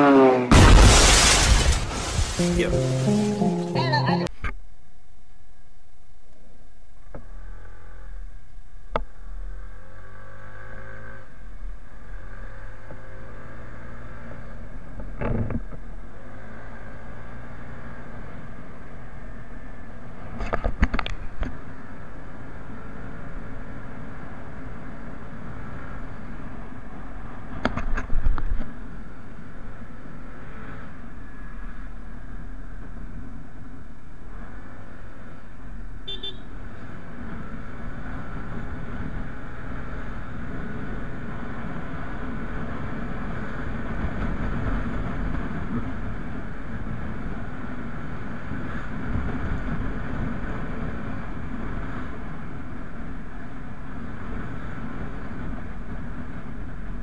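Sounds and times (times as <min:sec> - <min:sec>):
short horn beep: 0:02.4 - 0:04.3, 0:36.1 - 0:36.5
motorcycle engine and wind noise: 0:09.6 - 0:57.0.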